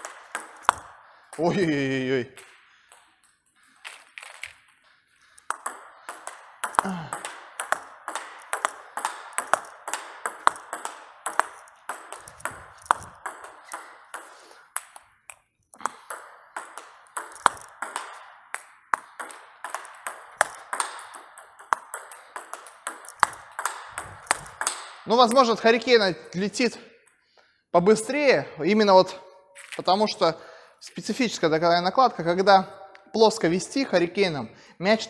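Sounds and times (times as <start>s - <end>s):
table tennis ball clicking: 0.0s - 1.4s, 5.4s - 25.4s.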